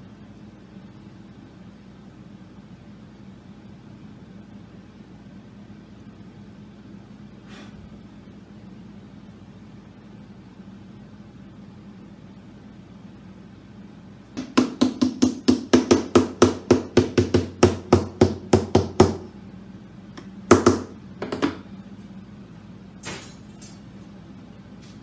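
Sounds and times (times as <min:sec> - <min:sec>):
small hammer tapping wood: 0:14.4 - 0:19.3.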